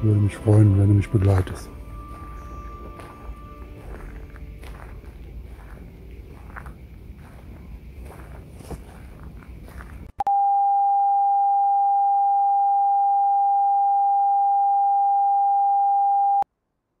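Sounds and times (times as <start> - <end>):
footsteps: 1.2 - 10.2
television test-card tone: 10.2 - 16.4.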